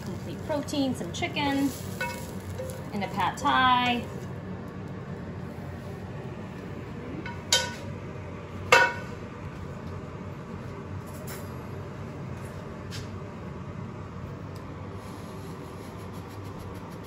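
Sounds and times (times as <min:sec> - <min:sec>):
steady low hum: 0:00.0 - 0:17.0
pan clinking on ceramic plate: 0:08.7 - 0:09.1.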